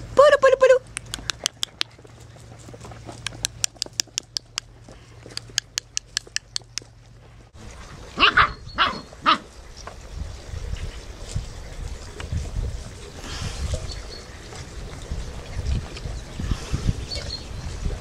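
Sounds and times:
sharp clicks and ticks: 0.8s - 7.0s
puppies yapping: 8.2s - 9.5s.

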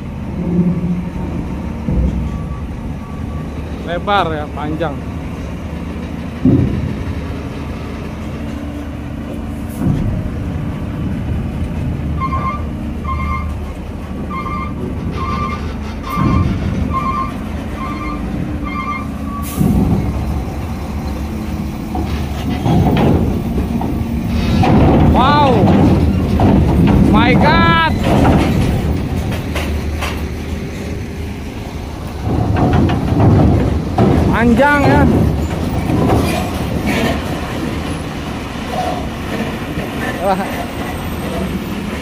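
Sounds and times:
diesel truck engine running: 0.0s - 42.0s
vehicle warning beeper: 2.1s - 4.4s, 12.2s - 13.6s, 14.3s - 19.6s
wheels thudding over ramp plates: 14.3s - 30.4s, 31.8s - 42.0s.

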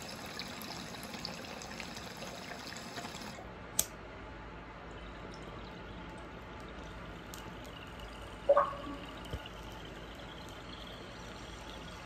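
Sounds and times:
water trickling in a glass bong: 0.0s - 3.4s, 4.9s - 12.0s
bong water bubbling: 7.6s - 12.0s.

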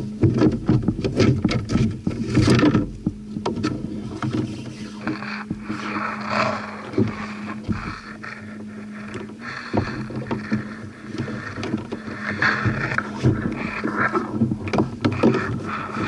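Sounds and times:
knocks and clicks on plastic hull: 0.0s - 5.8s, 6.8s - 8.3s, 9.0s - 16.0s
steady low hum: 0.0s - 16.0s
grass rustling: 4.0s - 16.0s.

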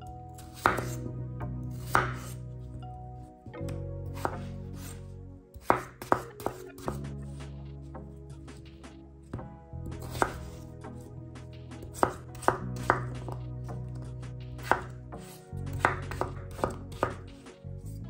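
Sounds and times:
knife chopping on wooden board: 0.4s - 1.0s, 1.7s - 2.4s, 4.2s - 5.0s, 5.6s - 7.1s, 9.9s - 10.6s, 11.8s - 13.8s, 14.6s - 17.4s.

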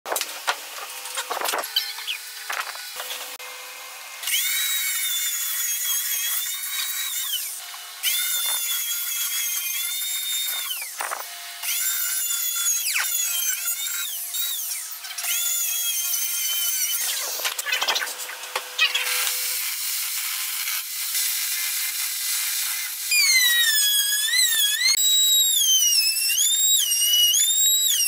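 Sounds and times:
router motor whining: 9.5s - 11.9s, 12.6s - 20.3s, 22.9s - 28.0s.

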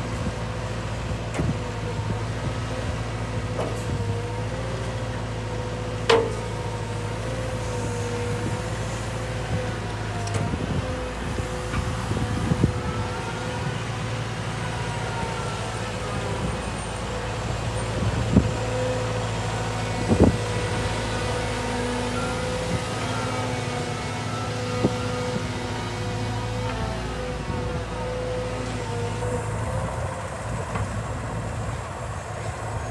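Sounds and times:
excavator diesel engine with whine: 0.0s - 32.9s.

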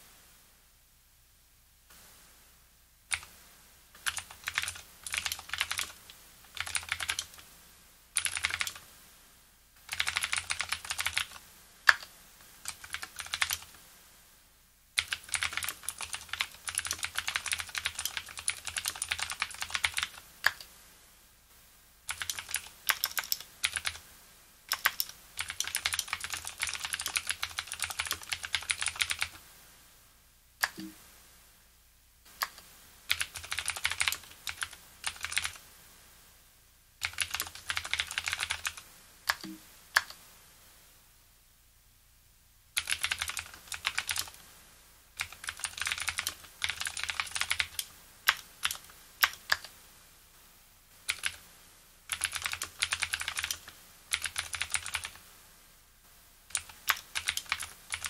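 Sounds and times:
mechanical keyboard typing clicks: 4.0s - 7.4s, 8.2s - 8.8s, 9.9s - 13.7s, 15.0s - 20.7s, 22.1s - 24.0s, 24.7s - 29.4s, 30.6s - 30.9s, 32.4s - 35.6s, 37.0s - 40.2s, 42.8s - 44.4s, 45.2s - 49.7s, 51.0s - 51.4s, 52.1s - 55.2s, 56.5s - 58.0s.

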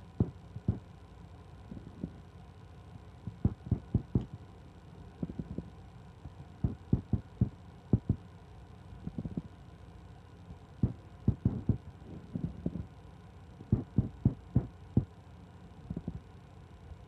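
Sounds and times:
faint low hum: 0.0s - 17.0s
fingers tapping a smartphone: 3.3s - 4.3s, 10.8s - 11.8s.

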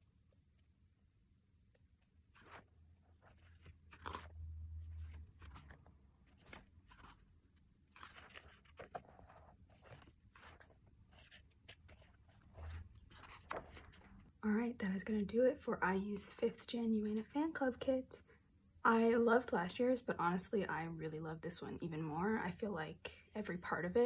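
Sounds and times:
book pages turning: 2.0s - 14.4s.

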